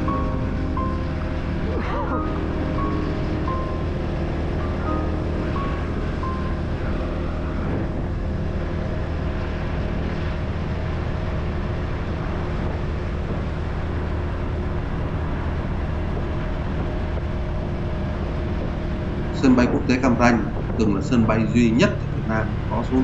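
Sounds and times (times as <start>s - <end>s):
wind and road noise: 0.0s - 23.0s.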